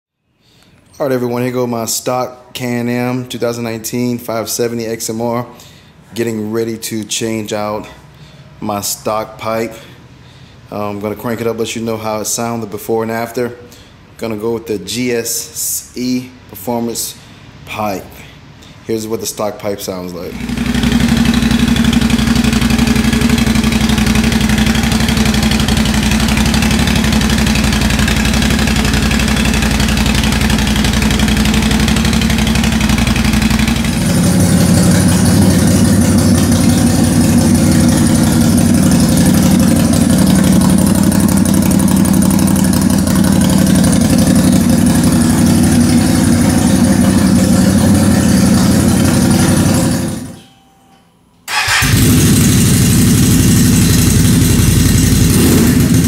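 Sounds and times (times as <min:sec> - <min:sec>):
atv engine exhaust: 0:20.3 - 0:50.6, 0:51.5 - 0:56.0.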